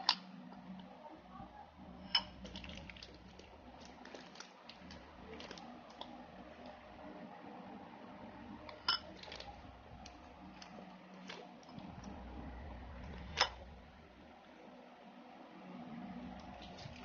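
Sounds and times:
sticky glue squishing: 2.4 - 6.8.

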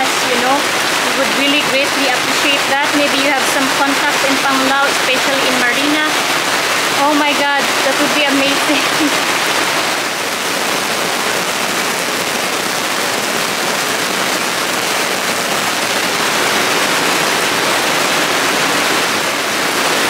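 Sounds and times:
heavy rain falling: 0.0 - 20.0.

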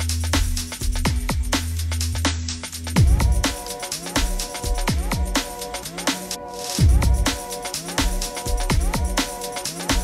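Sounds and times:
deep drum beat: 3.0 - 5.7, 6.8 - 10.0.

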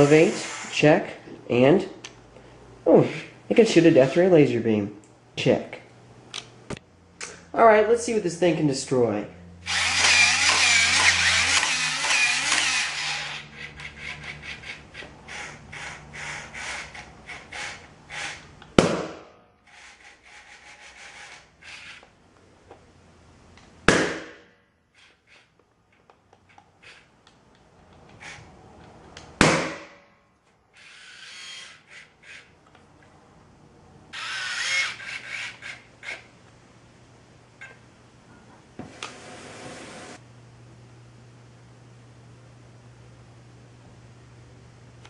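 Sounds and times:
robot gear motors whirring: 9.7 - 18.4, 30.8 - 32.5, 34.2 - 36.3
robot legs clicking rapidly: 9.7 - 18.4.

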